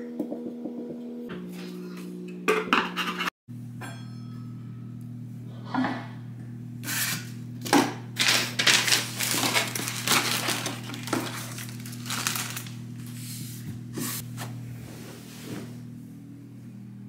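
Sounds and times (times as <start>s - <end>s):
steady low hum: 0.0s - 17.0s
plastic wrapping crinkling: 8.2s - 13.2s.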